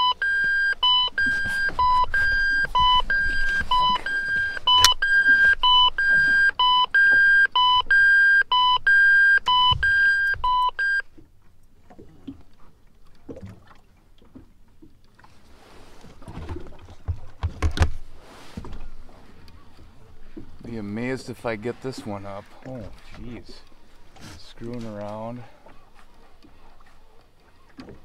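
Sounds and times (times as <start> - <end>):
electronic alarm beeping: 0.0 - 11.0
faint low rustles and knocks: 11.1 - 28.0.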